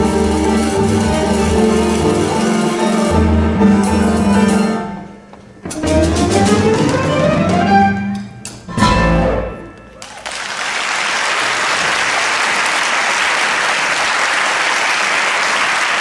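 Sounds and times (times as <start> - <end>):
audience applauding: 9.9 - 16.0.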